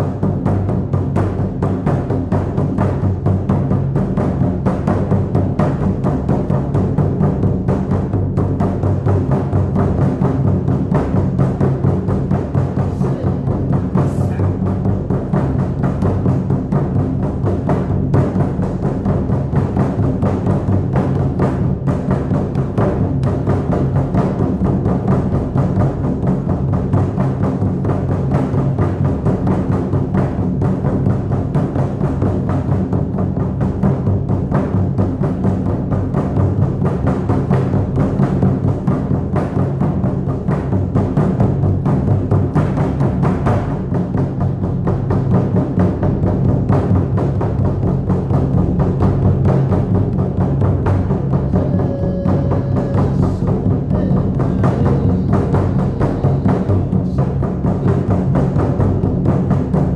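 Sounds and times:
drum beaten in fast rhythm: 0:00.0 - 0:59.9.

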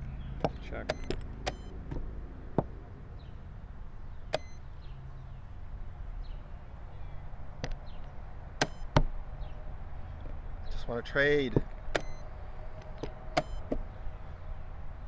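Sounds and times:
chess clock buttons clicking: 0:00.4 - 0:02.0, 0:04.3 - 0:04.6, 0:08.6 - 0:09.0, 0:11.9 - 0:12.3, 0:13.4 - 0:13.8.

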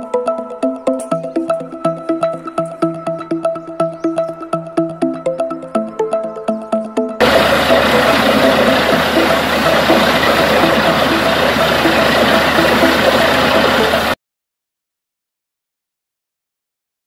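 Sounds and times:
drilling rig running: 0:07.2 - 0:14.2
water gushing and splashing: 0:07.2 - 0:14.2.

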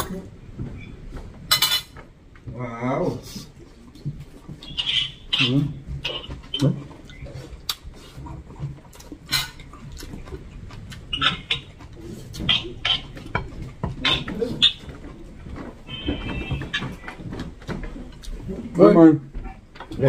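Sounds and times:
dishes and utensils clinking: 0:01.5 - 0:02.0, 0:09.2 - 0:10.1
mouth smacks and slurps: 0:05.3 - 0:14.8.

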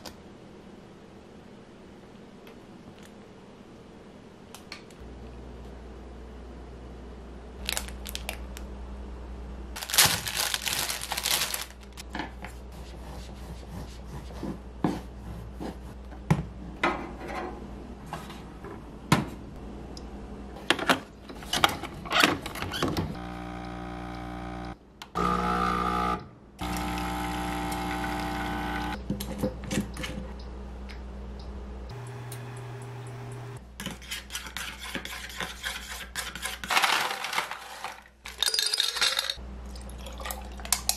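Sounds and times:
packaging rustling: 0:07.6 - 0:08.4, 0:09.8 - 0:12.0
steady hum: 0:23.2 - 0:29.0, 0:30.4 - 0:33.6.

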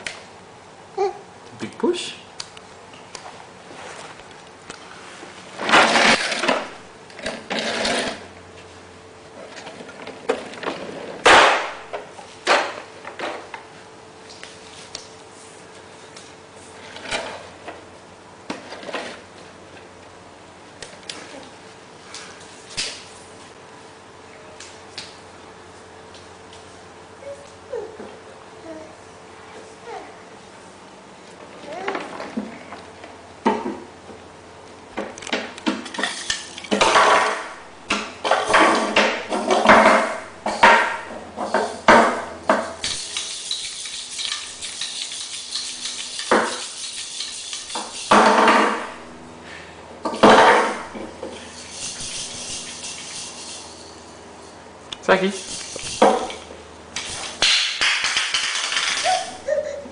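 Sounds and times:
steady low hum: 0:32.3 - 0:57.8.

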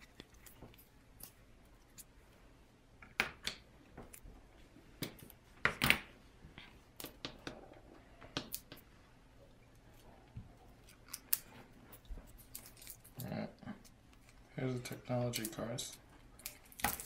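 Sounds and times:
plastic wrapper crinkling: 0:12.2 - 0:13.4.

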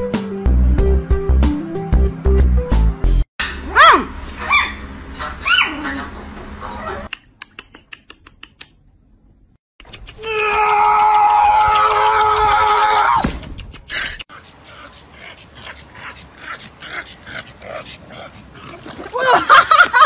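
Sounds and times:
puppy yelping: 0:03.4 - 0:04.8, 0:05.4 - 0:05.8.

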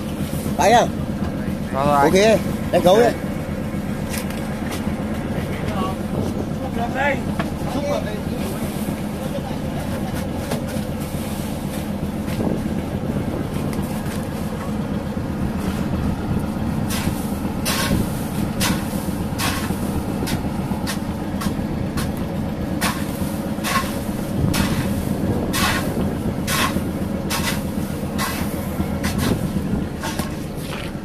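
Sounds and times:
boat engine running: 0:00.0 - 0:31.0
sharp scrapes and knocks: 0:16.9 - 0:22.2, 0:22.8 - 0:31.0.

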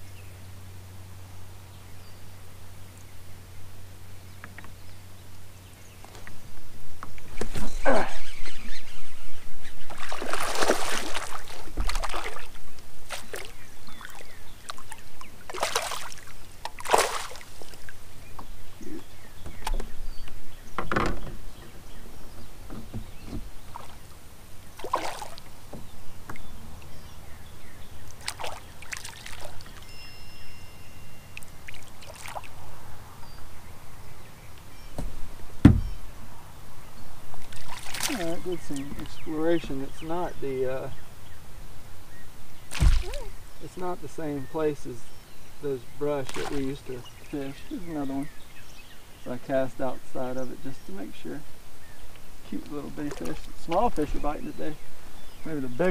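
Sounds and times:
paddle strokes splashing water: 0:09.8 - 0:18.0, 0:22.8 - 0:26.4, 0:28.1 - 0:29.9, 0:31.4 - 0:32.6, 0:37.4 - 0:39.0, 0:46.2 - 0:46.8, 0:52.9 - 0:54.0
water trickling off paddle: 0:09.8 - 0:18.5.

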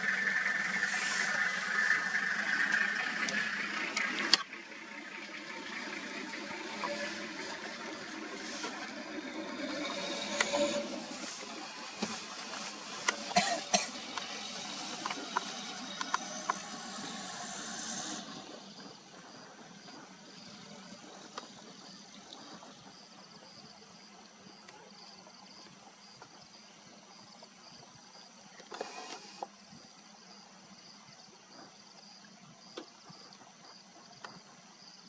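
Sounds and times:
faint high pulsing chirr: 0:00.0 - 0:28.3.

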